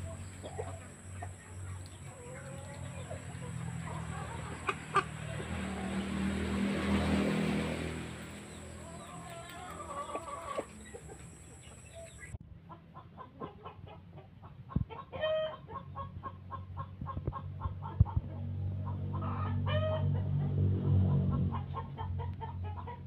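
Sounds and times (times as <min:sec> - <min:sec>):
chicken calling: 0:00.0 - 0:06.3, 0:08.4 - 0:12.4
chickens clucking: 0:00.0 - 0:20.5, 0:21.1 - 0:23.0.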